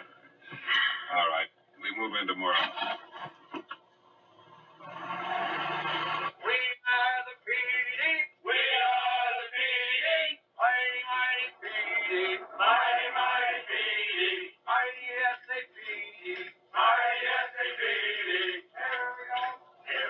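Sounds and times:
man singing with music on television: 4.9s - 20.0s.

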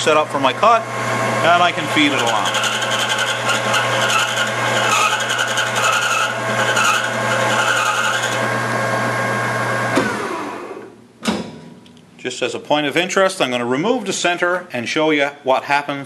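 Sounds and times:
lathe motor hum: 0.1s - 10.9s
lathe tool scraping brass: 1.2s - 8.5s.

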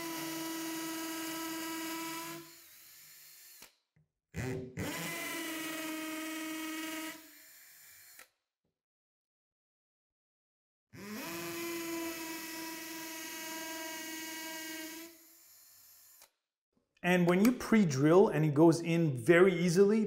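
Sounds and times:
cordless drill motor whine: 0.0s - 3.8s, 4.4s - 8.4s, 11.0s - 16.3s.

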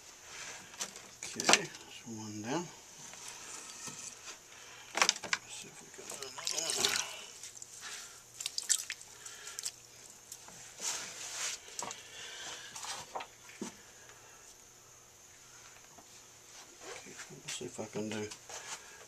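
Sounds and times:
wet clay handling noises: 6.0s - 12.0s.

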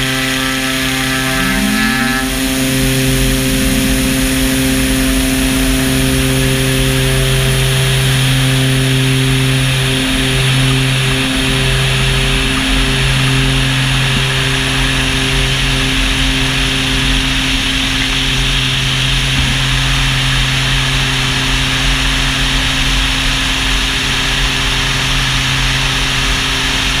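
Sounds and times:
turboprop engine drone: 0.0s - 27.0s
rush of air: 1.4s - 6.9s.

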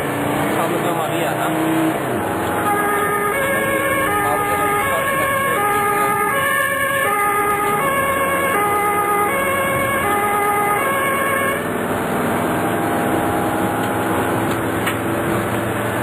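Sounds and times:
engine and road noise: 0.0s - 16.0s
two-tone ambulance siren: 2.3s - 14.4s.

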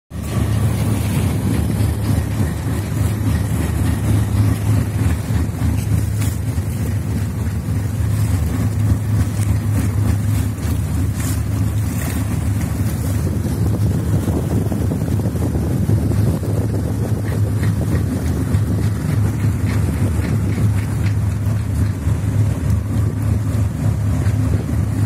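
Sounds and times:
motor boat engine droning: 0.1s - 25.0s
water rushing past hull: 0.1s - 25.0s.

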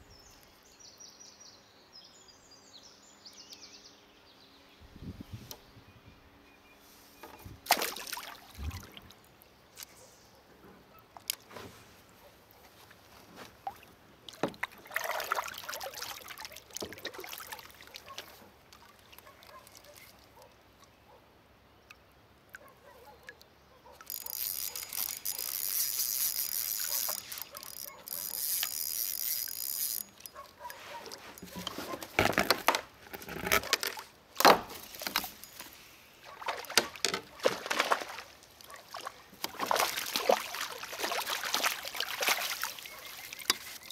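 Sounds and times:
water sloshing around kayak: 7.2s - 9.4s, 11.0s - 20.9s, 22.5s - 43.9s.

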